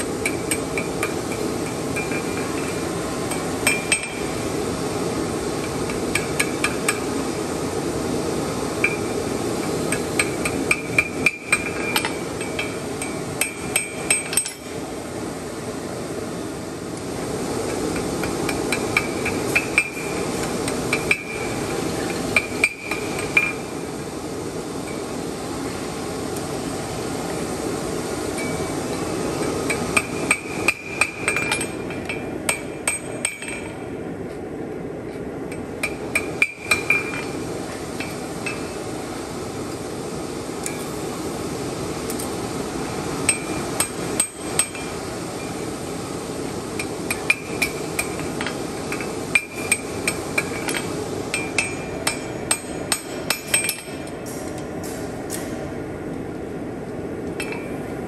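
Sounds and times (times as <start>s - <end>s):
hammer striking steel on anvil: 0.2s - 4.4s, 10.2s - 14.8s, 20.9s - 21.5s, 22.4s - 23.6s, 29.4s - 33.8s, 35.8s - 37.4s, 46.8s - 55.5s.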